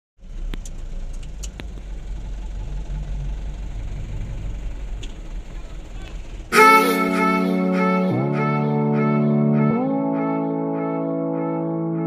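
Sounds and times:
vehicle engine idling: 0:00.2 - 0:08.8.

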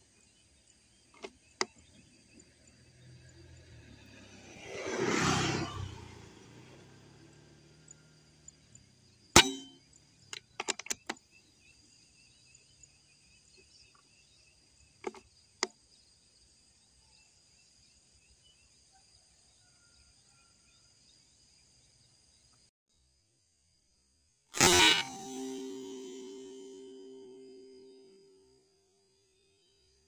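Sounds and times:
air rifle shot: 0:24.6 - 0:27.9.

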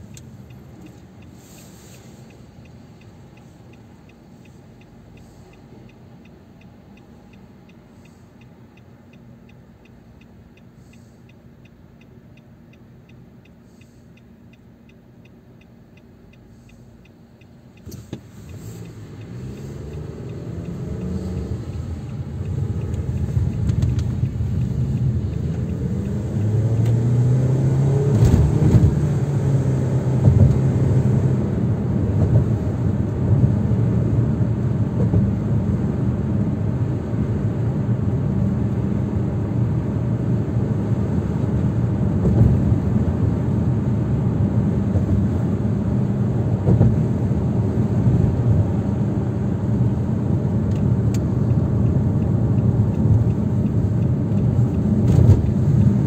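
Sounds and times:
faint regular ticking: 0:00.0 - 0:27.0, 0:50.6 - 0:56.0
car engine and road noise: 0:00.0 - 0:56.0.

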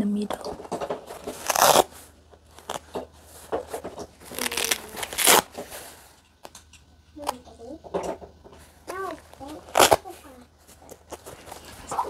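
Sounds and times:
patches tearing off felt: 0:01.1 - 0:02.9, 0:04.2 - 0:05.5, 0:09.3 - 0:10.2.

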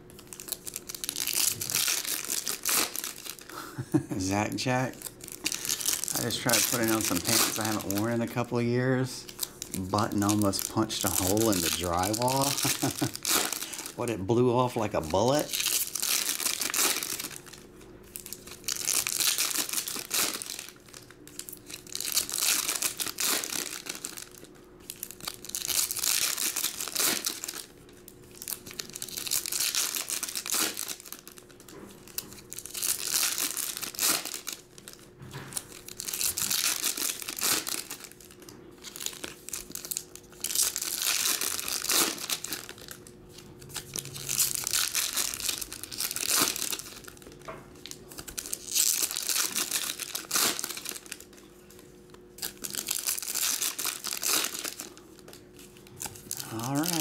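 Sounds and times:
foil wrappers tearing and crinkling: 0:00.1 - 0:57.0.

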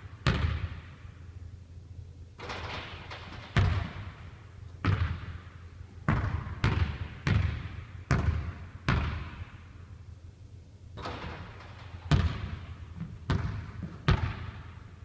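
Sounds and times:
basketball bouncing on hardwood floor: 0:03.5 - 0:04.1, 0:04.8 - 0:05.3, 0:06.1 - 0:09.4, 0:12.0 - 0:14.6.

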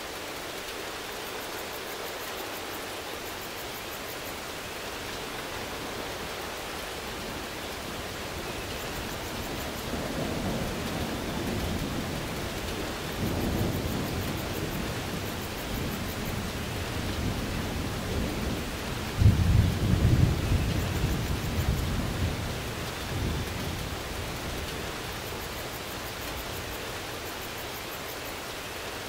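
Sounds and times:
steady rain: 0:00.0 - 0:29.0
rolling thunder: 0:08.6 - 0:25.4.

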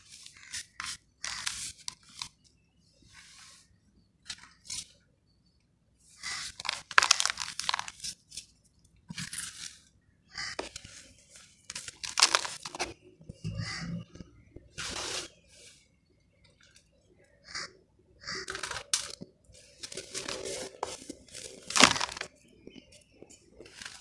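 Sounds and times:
sand and cement chunks crunching: 0:06.2 - 0:08.2, 0:11.7 - 0:13.0, 0:18.4 - 0:22.8.

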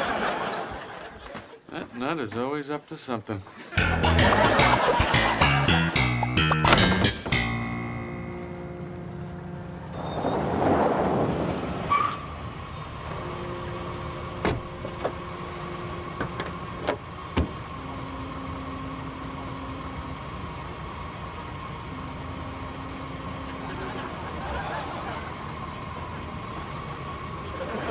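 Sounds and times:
car doors and trunk clunking: 0:06.0 - 0:07.8, 0:14.0 - 0:17.8.

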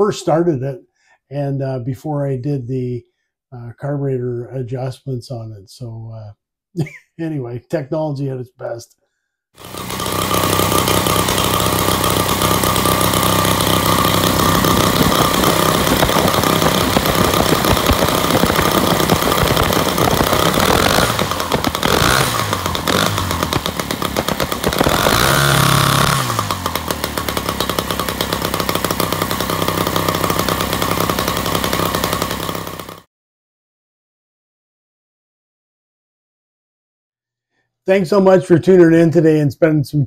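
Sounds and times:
two-stroke engine running: 0:09.6 - 0:33.1.

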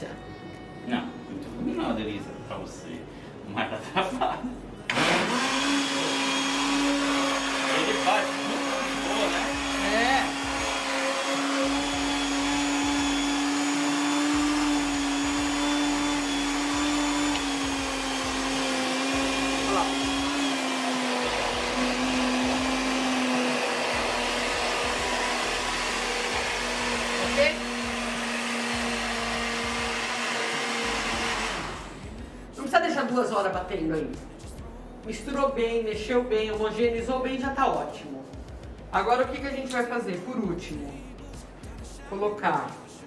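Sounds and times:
kitchen blender motor hum: 0:04.9 - 0:32.0.

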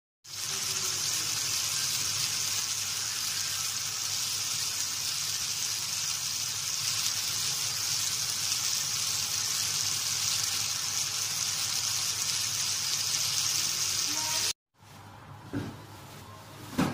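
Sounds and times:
meat sizzling on griddle: 0:00.2 - 0:14.6.

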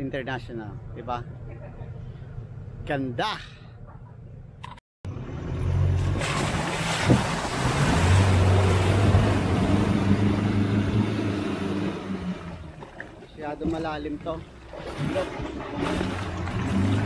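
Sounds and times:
off-road engine revving: 0:05.0 - 0:17.0
wheels churning through mud: 0:05.6 - 0:17.0
rush of spray: 0:06.2 - 0:10.4.

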